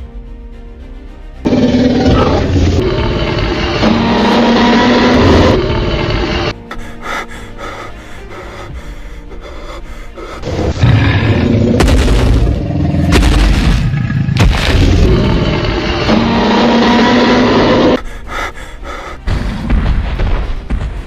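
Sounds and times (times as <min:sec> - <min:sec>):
dramatic film soundtrack: 0:00.0 - 0:21.0
booming hits: 0:11.4 - 0:16.9.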